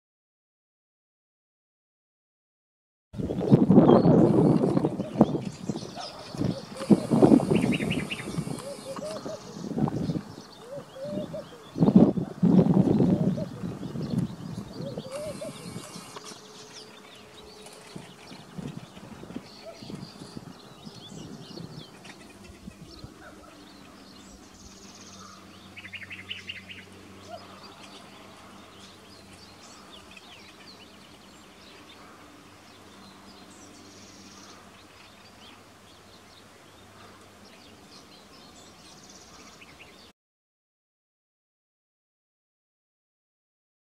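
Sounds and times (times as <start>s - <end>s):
high buzzy bird notes: 3.2s - 30.4s
birds calling and singing: 3.2s - 40.1s
bird chattering trill: 3.9s - 12.1s, 14.8s - 16.7s.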